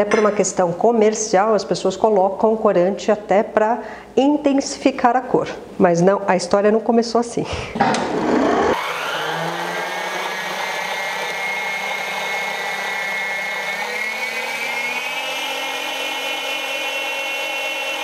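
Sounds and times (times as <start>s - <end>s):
stand mixer motor whining: 8.0s - 18.0s.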